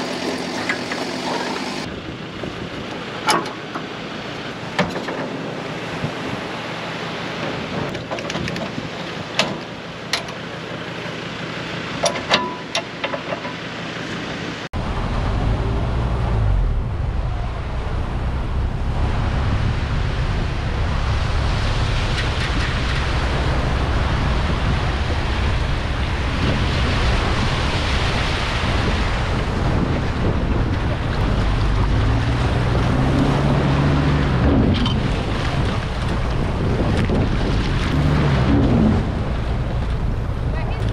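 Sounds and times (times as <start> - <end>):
wind buffeting microphone: 14.8 - 40.9.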